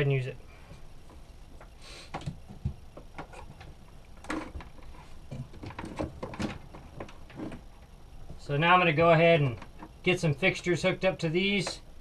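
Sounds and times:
light clicks and knocks of wires: 1.0s - 8.4s, 9.4s - 10.1s, 11.6s - 11.8s.

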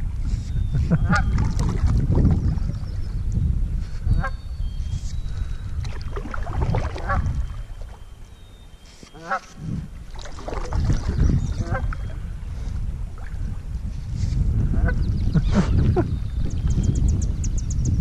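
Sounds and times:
large waterbird calling: 0.3s - 3.2s, 4.0s - 13.4s.

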